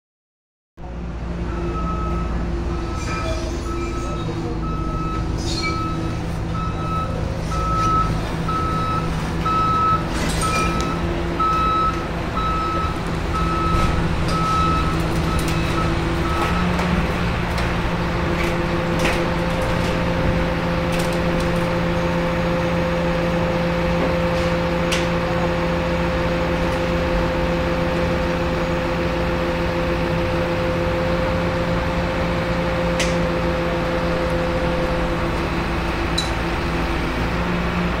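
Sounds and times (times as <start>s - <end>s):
excavator diesel engine: 0.8s - 38.0s
backup alarm beeping: 1.5s - 16.8s.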